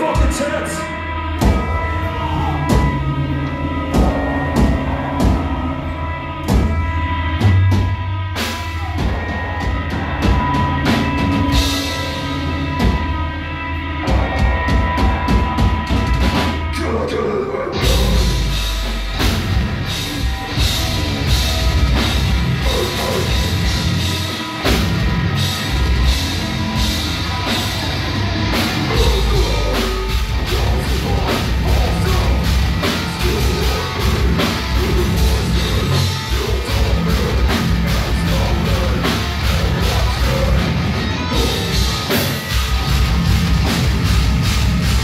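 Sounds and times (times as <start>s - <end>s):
bass guitar: 0.0s - 45.0s
electric guitar: 0.0s - 45.0s
person singing into a microphone: 28.8s - 42.0s.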